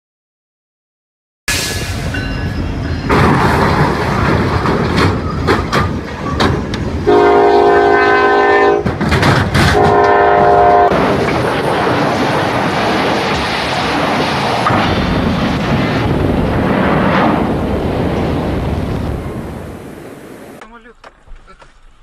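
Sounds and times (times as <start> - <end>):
train crash crunching: 3.0 - 19.2
locomotive air horn blasts: 7.1 - 8.9, 9.7 - 11.0
steady rushing noise: 8.8 - 20.7.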